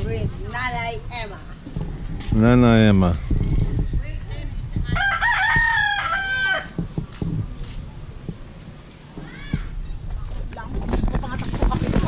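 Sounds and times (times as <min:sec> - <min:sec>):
rooster crowing: 0:05.0 - 0:06.8.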